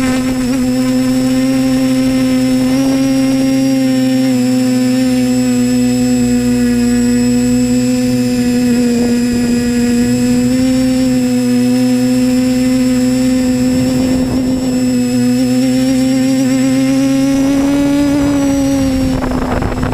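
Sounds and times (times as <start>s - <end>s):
drone motors whining: 0.0s - 19.9s
wind noise rushes: 5.4s - 19.9s.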